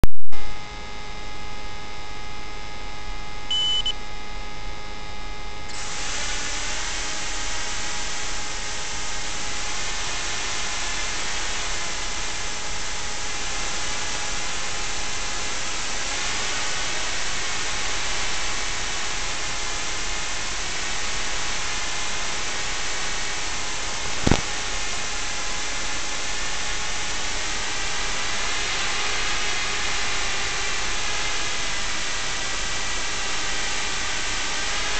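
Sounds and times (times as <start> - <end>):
short high beep: 3.5 - 4.0
steady hiss with hum: 5.3 - 34.9
single click: 24.2 - 24.5.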